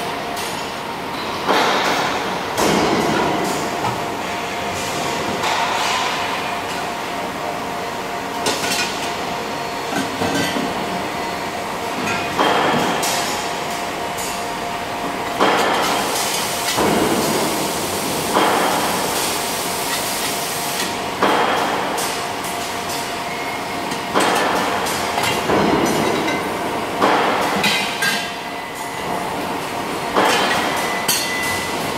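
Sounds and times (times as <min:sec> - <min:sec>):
steady machine hum: 0:00.0 - 0:31.9
welding arc hiss: 0:15.8 - 0:21.0.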